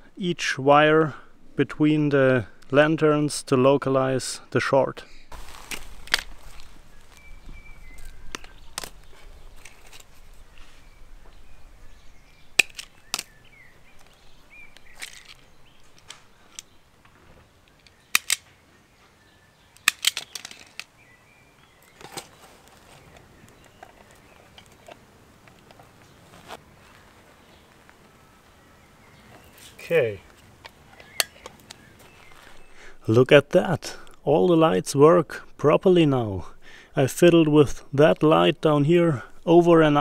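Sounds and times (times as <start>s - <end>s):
wire cutters snapping: 12.6s - 13.3s, 17.8s - 18.5s, 19.8s - 20.9s, 30.6s - 31.8s.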